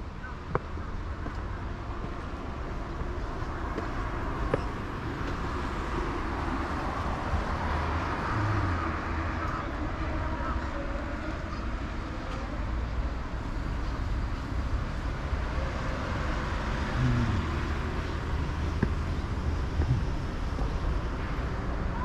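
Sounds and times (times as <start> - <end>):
cars driving past: 1.6 - 10.7, 14.0 - 22.0.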